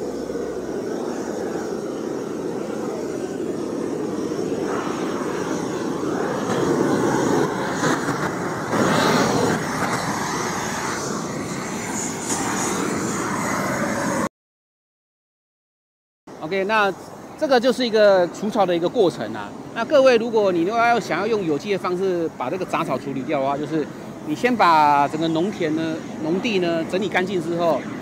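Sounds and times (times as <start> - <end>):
gas torch flame rushing: 0.0 - 14.3.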